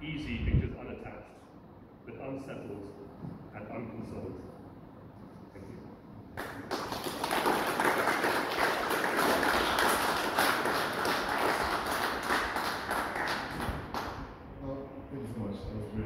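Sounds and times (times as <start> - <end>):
audience applauding: 6.4 - 14.4.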